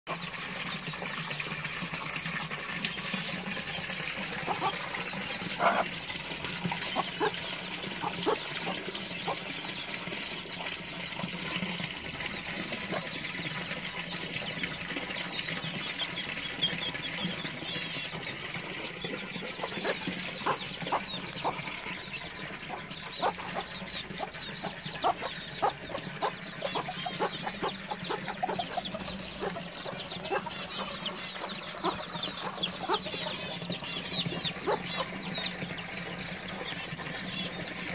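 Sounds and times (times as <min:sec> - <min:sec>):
chicks peeping: 0:03.1 - 0:37.9
hens clucking: 0:03.4 - 0:10.8, 0:19.1 - 0:37.1.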